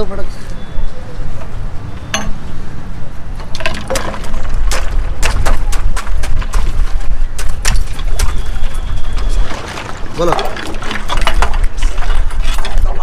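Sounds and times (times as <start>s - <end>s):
glassware and utensils clinking: 2.1s - 2.4s.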